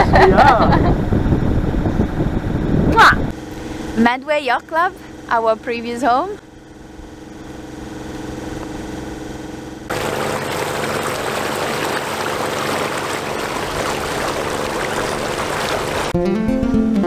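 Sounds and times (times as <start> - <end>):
boat engine running: 0.0 - 16.2
churning wake water rushing: 9.9 - 16.2.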